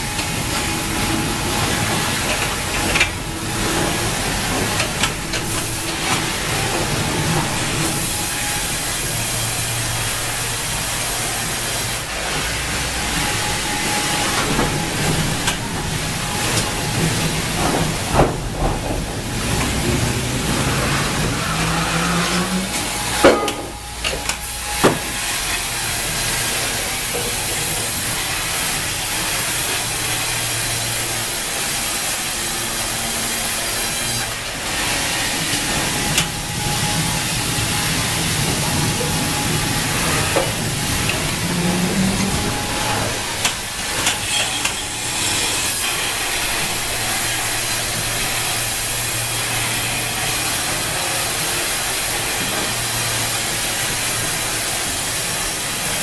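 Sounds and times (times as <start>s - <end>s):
low machine hum: 34.4s - 51.7s.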